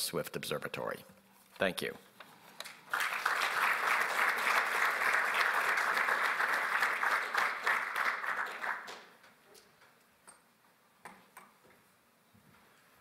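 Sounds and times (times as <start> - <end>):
audience applauding: 2.8 - 9.2.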